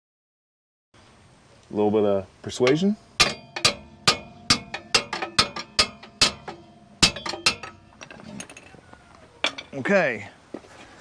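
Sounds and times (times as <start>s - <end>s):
hammer striking metal: 2.6s - 8.0s.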